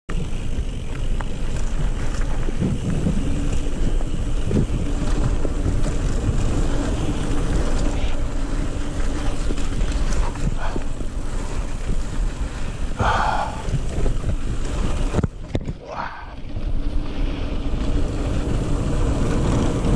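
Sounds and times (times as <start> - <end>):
bike knocking and rattling: 0.1 - 19.9
bike tyres rumbling on dirt: 0.1 - 19.9
wind buffeting microphone: 0.1 - 19.9.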